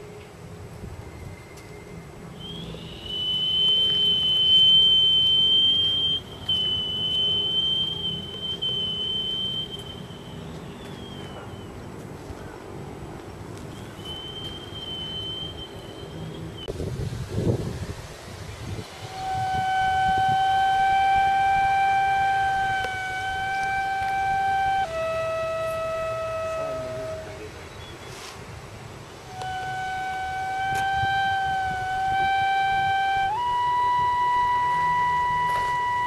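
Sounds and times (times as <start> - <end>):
stone flute high whistle: 1.0 - 11.8, 13.7 - 16.8, 18.8 - 27.5, 29.2 - 36.0.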